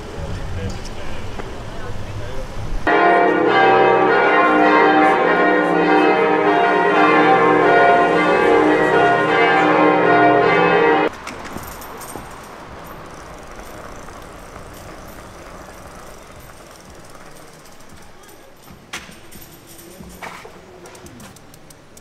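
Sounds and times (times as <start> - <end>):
faint street noise: 0.0 - 22.0
church bells pealing: 2.8 - 20.2.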